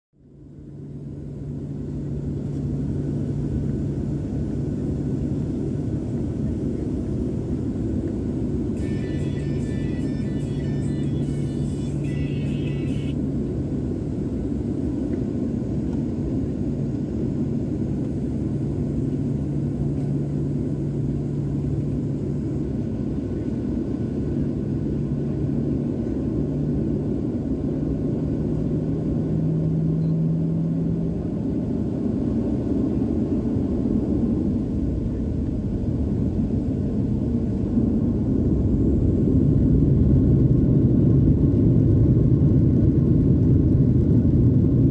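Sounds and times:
jet engines rumbling in cabin: 0.2 - 44.9.

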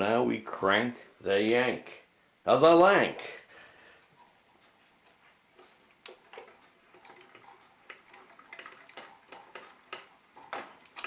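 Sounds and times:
light clicking and ticking: 5.9 - 11.0.

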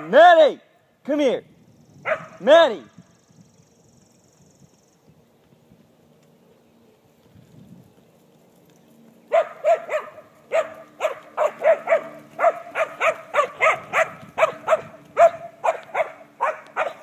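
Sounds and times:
dog barking high-pitched: 2.0 - 2.4, 9.3 - 17.0.

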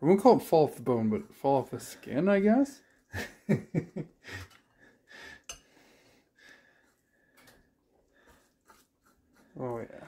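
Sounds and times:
fork scraping squash strands: 8.2 - 10.0.

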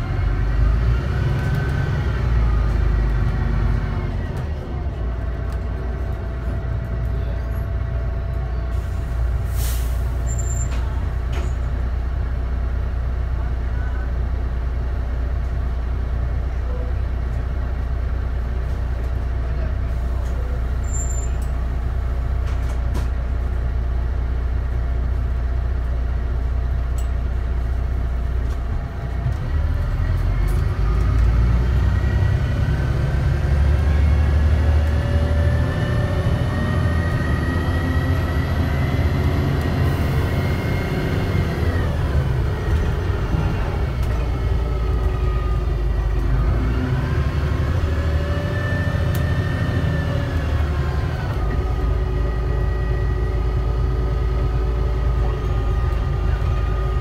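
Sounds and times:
bus diesel engine: 0.0 - 57.0
rising engine whine: 27.7 - 57.0.

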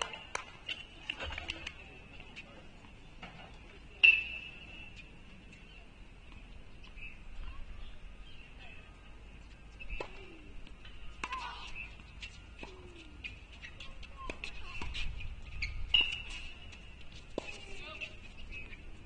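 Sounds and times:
birds chirping: 1.9 - 14.0, 17.8 - 19.0.

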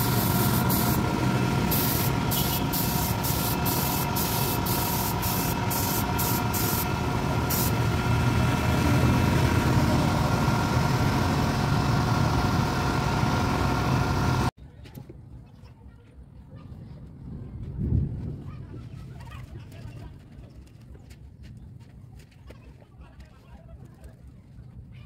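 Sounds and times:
spray gun hissing bursts: 0.0 - 7.9
air compressor humming: 0.0 - 14.5.

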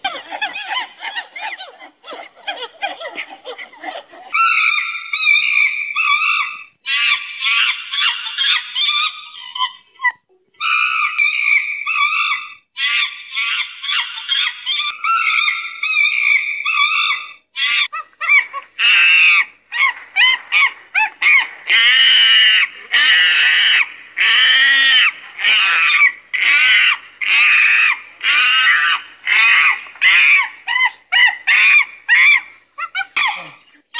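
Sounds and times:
primate squealing chatter: 0.0 - 33.9
primate shrill screams: 10.6 - 33.6.

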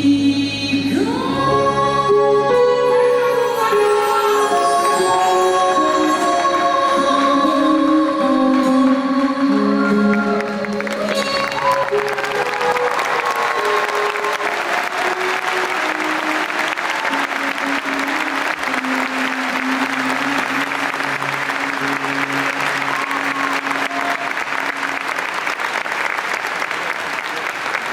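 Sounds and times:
audience applauding loudly: 9.7 - 27.9.

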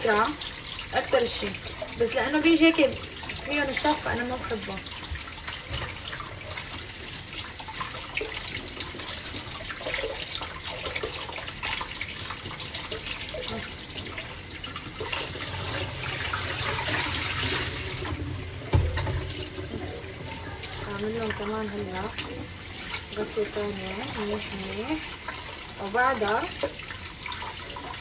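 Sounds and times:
tap running into steel sink: 16.6 - 20.1
knock: 18.7 - 19.2.

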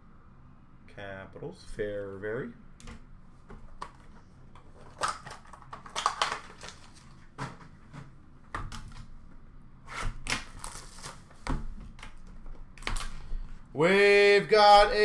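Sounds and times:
hands handling card boxes: 3.4 - 9.2.

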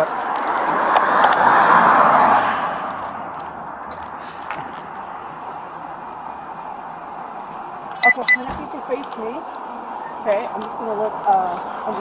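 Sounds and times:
vehicle passing by: 0.0 - 7.9.

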